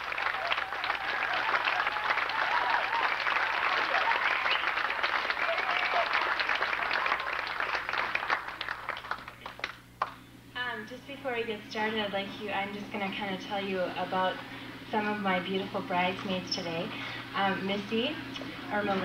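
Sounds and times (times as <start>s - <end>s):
crowd applauding: 0.0s - 10.1s.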